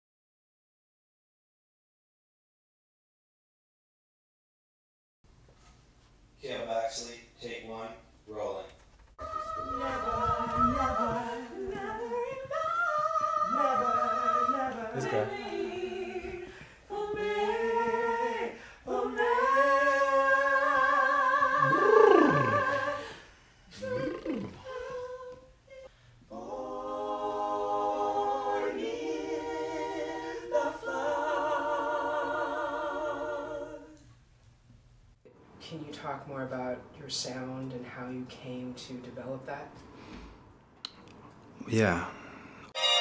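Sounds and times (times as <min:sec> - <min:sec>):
small choir singing a cappella: 0:09.2 - 0:34.2.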